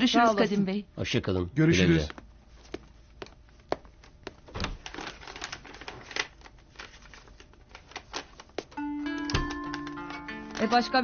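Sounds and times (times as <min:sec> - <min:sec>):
paper sheets rustling: 0:03.6 - 0:11.0.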